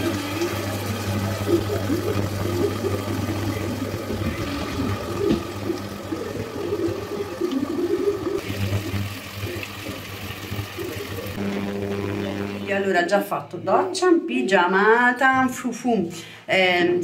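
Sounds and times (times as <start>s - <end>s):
steady low hum: 0.0s - 9.2s, 11.4s - 12.9s
pot bubbling and gurgling: 0.0s - 12.7s.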